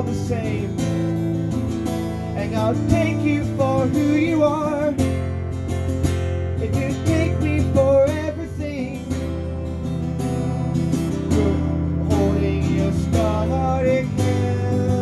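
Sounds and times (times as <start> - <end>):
man singing wordlessly: 0.0 - 1.4, 2.3 - 5.3, 6.5 - 9.3, 11.2 - 15.0
acoustic guitar strumming: 0.0 - 15.0.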